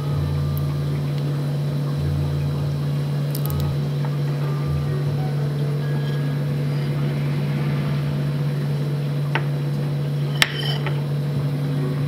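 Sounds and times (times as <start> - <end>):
kitchen equipment humming: 0.0 - 12.0
utensil clinking on dishware: 10.3 - 11.1.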